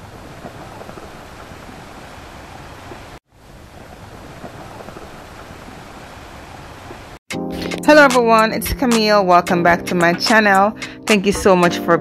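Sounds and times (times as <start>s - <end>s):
rushing water: 0.0s - 7.2s.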